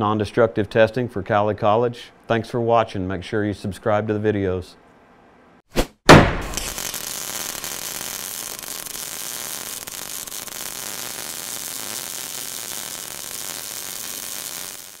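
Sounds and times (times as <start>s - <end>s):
crackling hiss: 6.4s - 15.0s.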